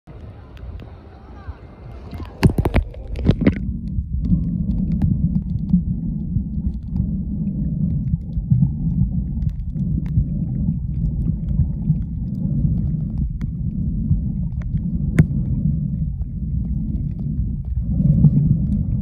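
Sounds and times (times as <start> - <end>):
faint clicks: 0.1 - 1.2, 1.8 - 19.0
muffled underwater rumble: 0.1 - 19.0
camera splashing into water: 2.1 - 3.7.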